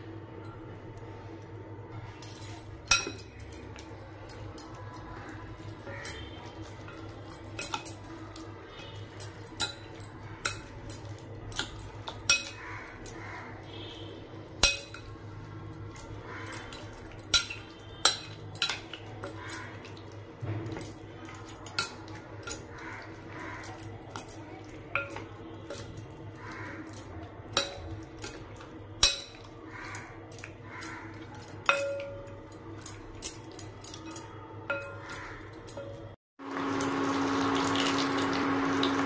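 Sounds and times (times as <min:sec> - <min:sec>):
spoon stirring marinade: 0:00.5 - 0:36.1
spoon clinking against glass: 0:02.2 - 0:05.1, 0:16.7 - 0:19.7, 0:31.2 - 0:36.1.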